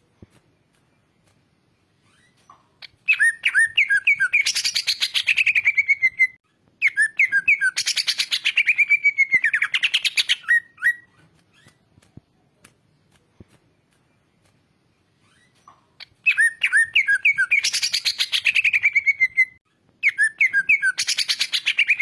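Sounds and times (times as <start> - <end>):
bird singing whistles and trills: 2.0 - 11.8, 15.2 - 22.0.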